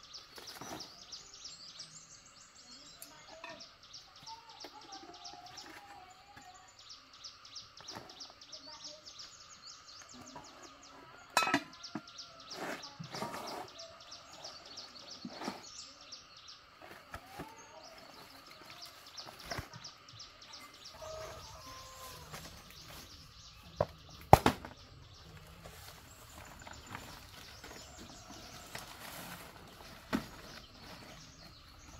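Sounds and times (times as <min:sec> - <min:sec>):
metal pots and lids clinking: 0:11.3 - 0:12.0.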